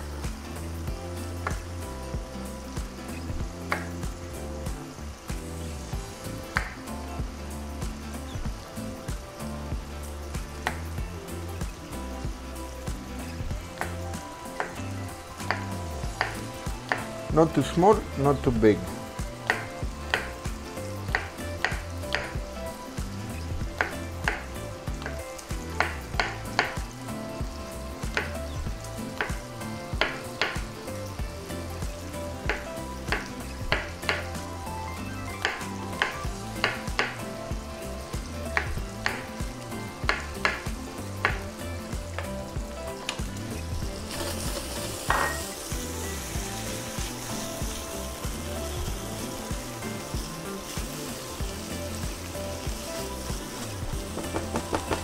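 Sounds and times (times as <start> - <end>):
bacon sizzling in a pan: 0.0 - 55.0
spatula stirring in pan: 43.6 - 55.0
knife knocking on cutting board: 45.1 - 45.4, 54.2 - 55.0.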